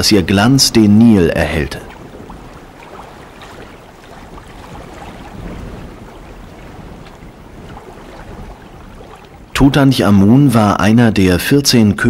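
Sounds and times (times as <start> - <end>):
river water: 0.0 - 11.9
wind: 0.0 - 12.0
faint small splashes: 1.5 - 9.6.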